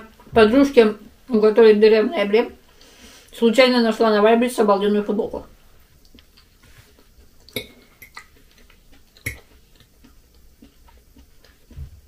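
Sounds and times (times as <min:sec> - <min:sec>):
fork clinking against glass plate: 0:07.5 - 0:08.3, 0:09.2 - 0:09.4.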